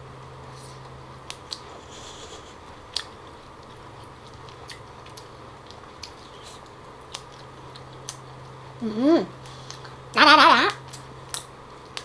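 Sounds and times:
chewing and mouth sounds: 0.7s - 8.8s, 9.4s - 10.1s.

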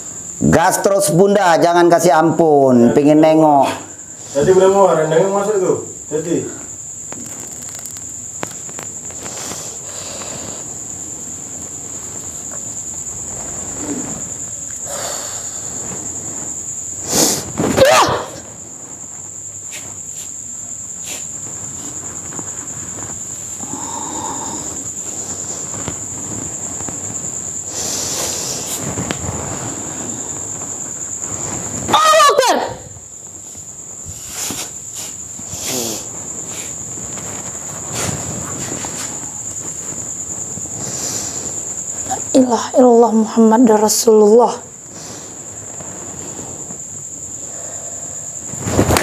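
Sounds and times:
crickets chirring: 0.0s - 49.0s
soft scuffs and rustles: 18.6s - 23.6s, 33.3s - 42.1s.

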